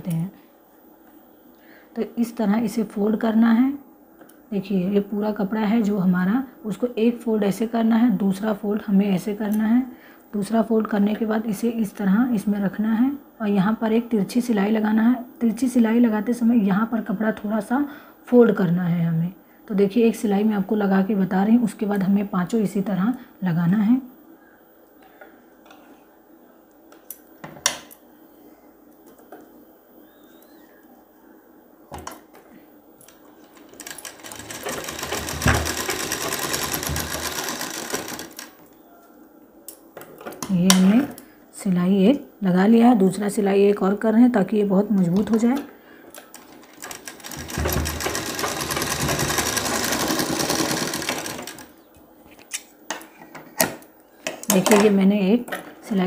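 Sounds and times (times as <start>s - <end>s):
sewing machine metallic clicks: 33.6s - 38.5s, 46.3s - 51.7s.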